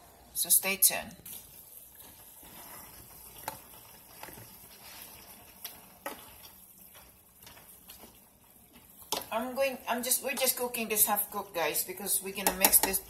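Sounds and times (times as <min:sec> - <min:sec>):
vegetables sizzling in a pan: 0:01.3 - 0:13.0
spatula clicking against pan: 0:12.4 - 0:13.0.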